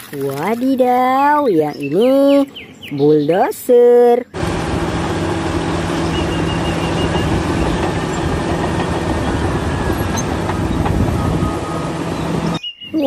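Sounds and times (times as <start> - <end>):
diesel engine droning: 4.3 - 12.6
bulldozer clatter pushing dirt: 4.4 - 12.6.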